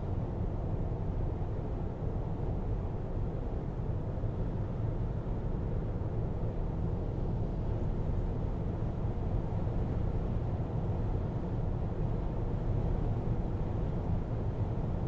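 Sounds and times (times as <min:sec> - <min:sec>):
car road noise at highway speed: 0:04.2 - 0:15.0.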